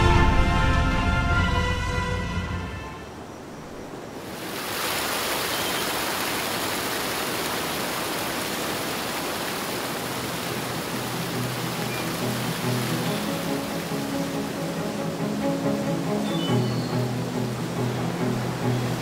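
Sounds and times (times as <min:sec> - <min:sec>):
background music: 0:00.0 - 0:03.2, 0:10.9 - 0:19.0
stream rushing over rocks: 0:03.5 - 0:19.0.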